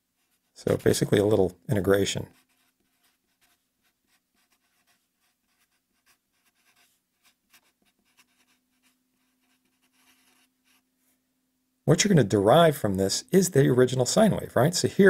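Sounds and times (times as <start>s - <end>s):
marker scratching on paper: 0.2s - 1.3s, 2.3s - 10.8s.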